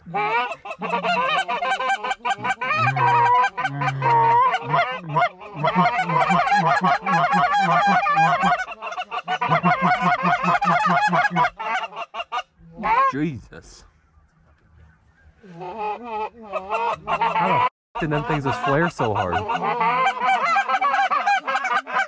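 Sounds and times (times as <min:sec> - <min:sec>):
goose calls honking and clucking: 0:00.0 - 0:13.2, 0:15.2 - 0:22.0.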